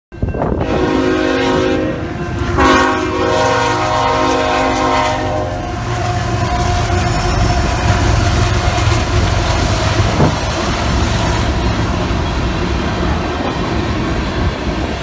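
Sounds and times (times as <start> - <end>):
locomotive air horn blasts: 0.5 - 8.1
locomotive diesel engine running: 4.8 - 15.0.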